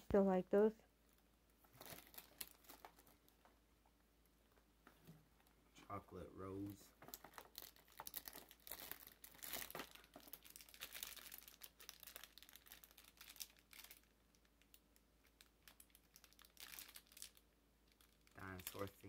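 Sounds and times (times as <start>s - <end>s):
plastic packaging crinkling: 1.1s - 3.6s, 7.0s - 19.0s.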